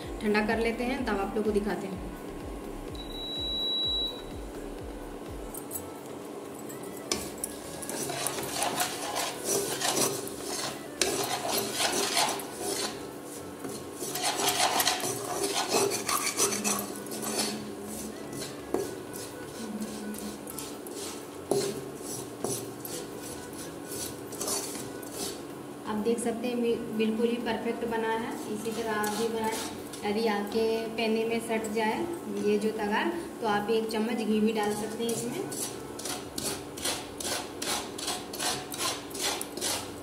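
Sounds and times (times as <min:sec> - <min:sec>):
spatula scraping sugar in pan: 0:07.6 - 0:25.4, 0:28.3 - 0:30.0, 0:34.6 - 0:40.0.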